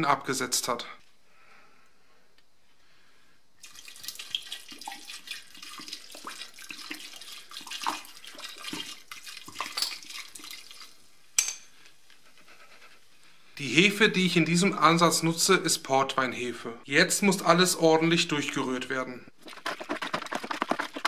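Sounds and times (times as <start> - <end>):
liquid pouring and splashing: 3.6 - 11.2, 19.4 - 21.0.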